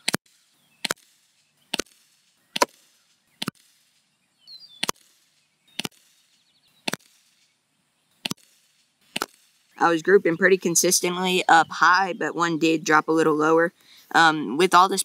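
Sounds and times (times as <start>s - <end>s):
air pistol shots popping: 0.0s - 4.1s, 4.7s - 7.5s, 8.2s - 9.8s.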